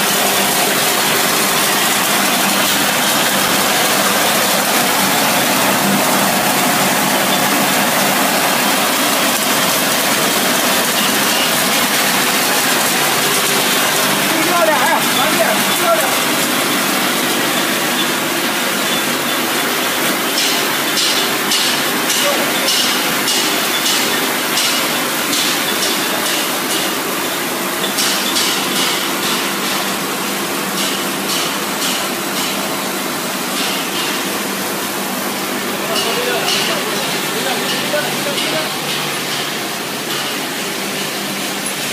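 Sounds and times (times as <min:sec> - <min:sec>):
pellets rattling on metal: 0:00.0 - 0:23.7
machine hum: 0:00.0 - 0:25.3.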